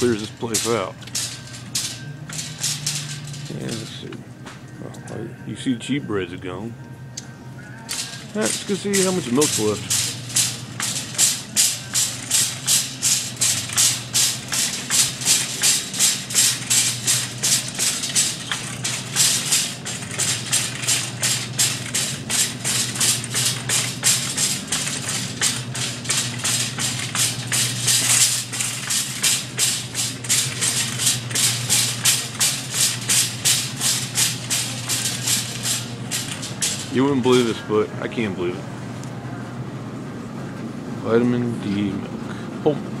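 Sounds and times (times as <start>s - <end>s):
rhythmic swishing from walking: 0.0s - 4.7s, 7.9s - 37.6s
steady low hum: 0.0s - 43.0s.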